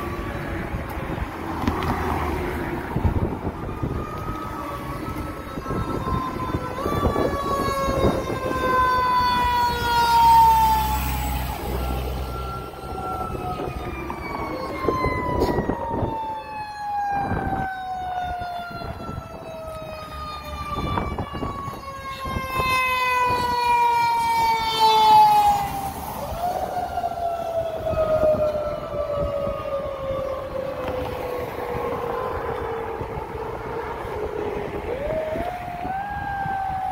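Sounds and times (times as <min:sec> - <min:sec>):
truck engine: 0:00.0 - 0:21.9
fire engine siren wailing: 0:00.0 - 0:36.9.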